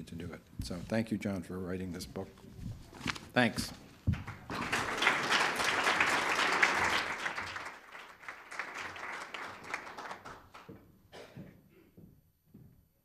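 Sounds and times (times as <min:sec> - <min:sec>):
audience applause: 0:04.2 - 0:10.7.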